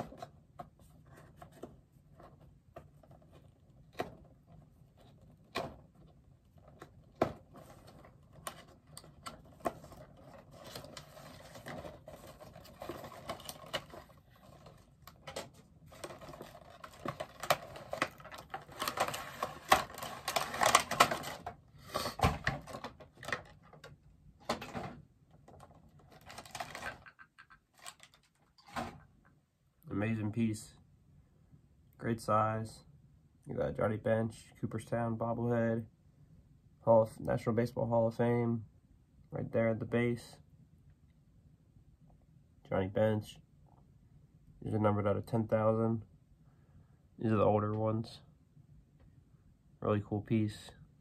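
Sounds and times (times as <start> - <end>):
box crackling and rustling: 0.0 - 29.0.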